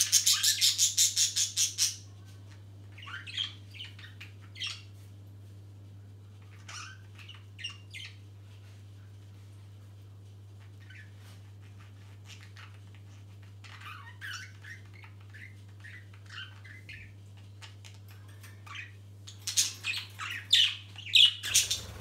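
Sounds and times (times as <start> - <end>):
budgerigars chirping and chattering: 0.0 - 2.1, 3.0 - 4.9, 6.5 - 8.2, 10.8 - 22.0
steady low hum: 16.8 - 22.0.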